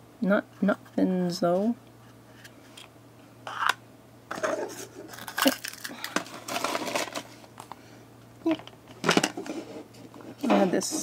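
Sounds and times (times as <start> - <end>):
packaging rustling: 4.4 - 7.7
plastic items clicking and tapping: 8.5 - 9.5.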